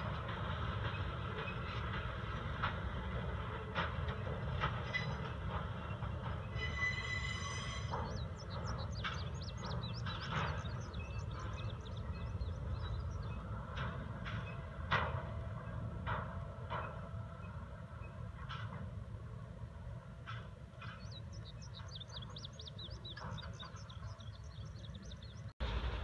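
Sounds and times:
train rolling over bridge: 0:00.0 - 0:26.0
high squeal: 0:06.6 - 0:08.2.

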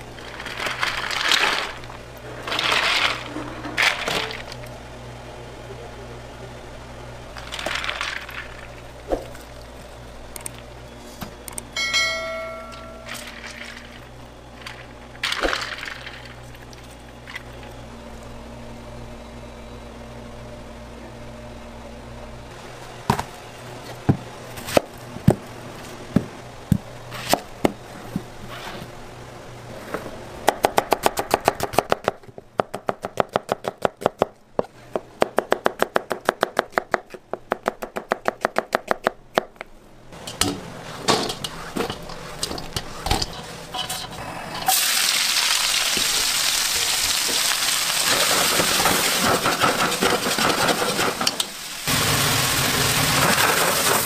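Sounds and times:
steady low hum: 0:00.0 - 0:44.7
short metallic ring: 0:11.8 - 0:13.3.

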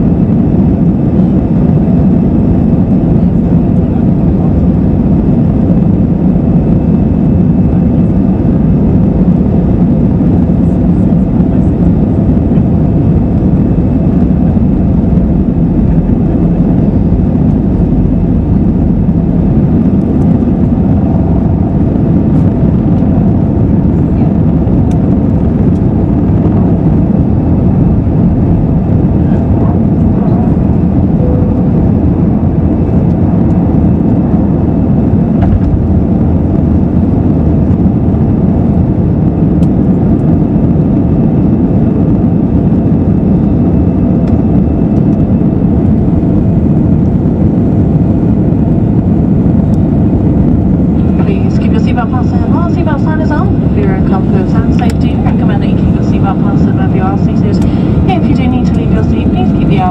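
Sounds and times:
jet engines roaring in cabin: 0:00.0 - 0:59.9.

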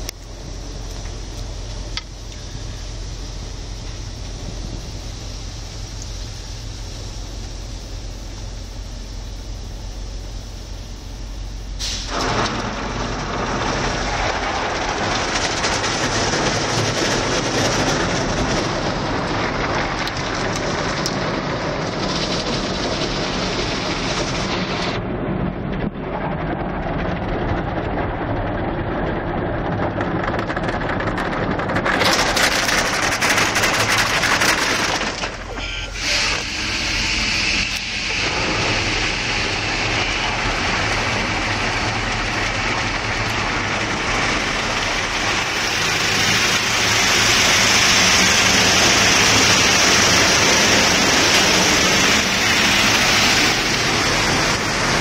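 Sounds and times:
car wash water spray: 0:00.0 - 0:25.0, 0:31.8 - 0:55.0
low machinery hum: 0:00.0 - 0:31.9.

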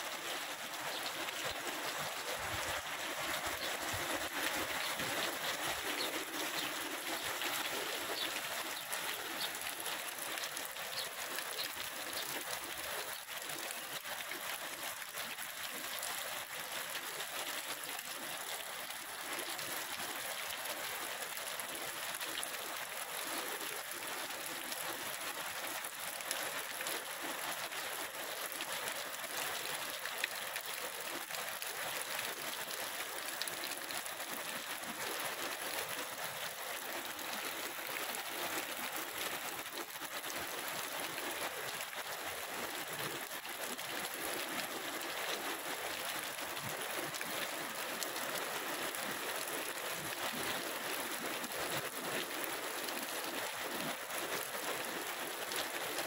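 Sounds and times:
heavy rain pouring: 0:00.0 - 0:12.7.

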